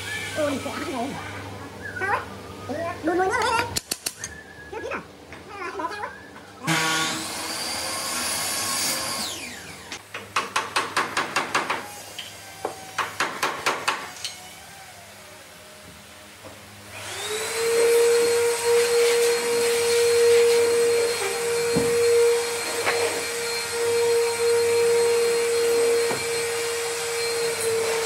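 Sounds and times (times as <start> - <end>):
power tool motor running: 6.7 - 10.0, 16.8 - 28.0
motor high whine: 14.2 - 28.0.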